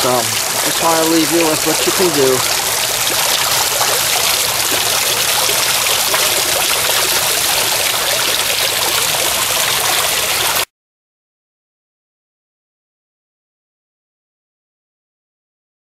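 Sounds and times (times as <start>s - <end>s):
waterfall splashing: 0.0s - 10.7s.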